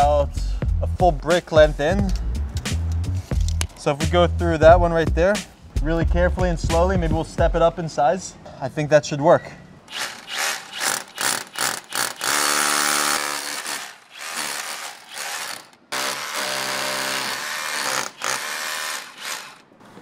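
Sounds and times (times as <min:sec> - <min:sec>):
power drill drilling into brick: 0:09.9 - 0:19.6.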